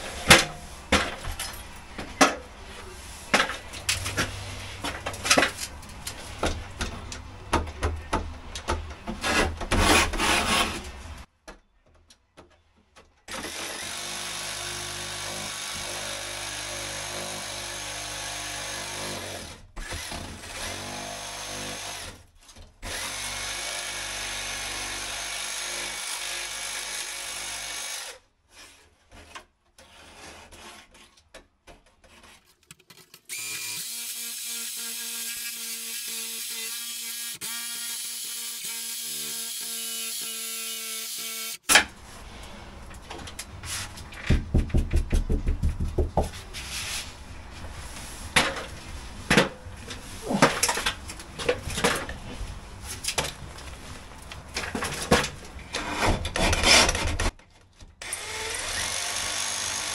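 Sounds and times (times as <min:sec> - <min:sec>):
reciprocating saw cutting wall: 0:58.0 - 0:59.9.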